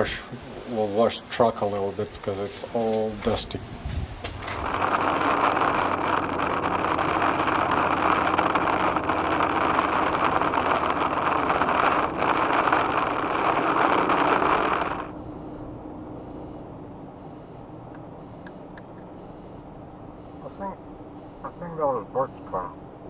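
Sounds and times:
rain: 4.4s - 15.1s.

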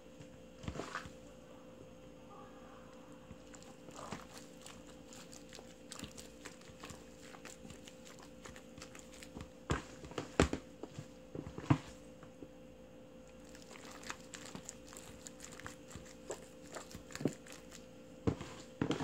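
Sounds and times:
wet squelches of cabbage leaves: 3.3s - 9.6s, 13.3s - 19.0s.

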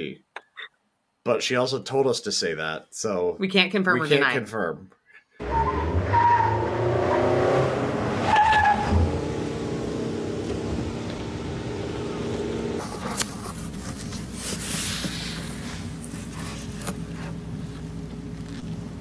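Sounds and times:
car engine idling: 8.8s - 12.9s.

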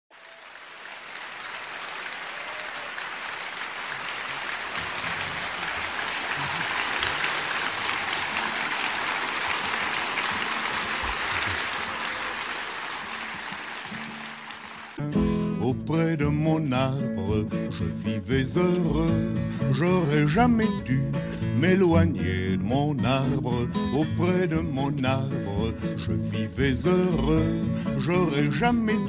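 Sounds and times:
audience applauding: 0.1s - 15.0s.

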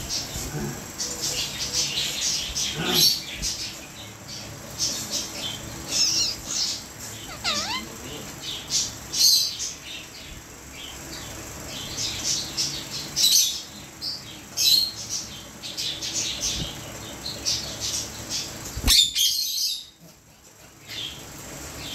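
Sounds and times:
parrots chirping: 0.0s - 20.0s.

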